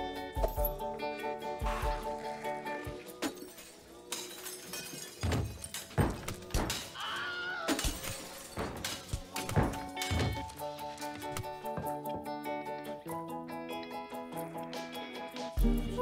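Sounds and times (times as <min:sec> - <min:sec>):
music: 0:00.0 - 0:16.0
heavy thuds and breaking impacts: 0:04.3 - 0:07.0, 0:07.7 - 0:11.5.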